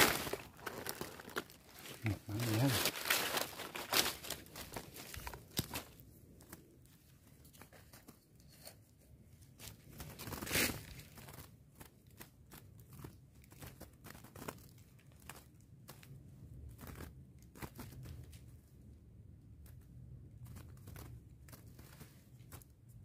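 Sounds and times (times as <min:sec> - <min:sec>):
bamboo trap creaking: 0:00.0 - 0:05.9
dry leaves rustling: 0:00.0 - 0:06.0.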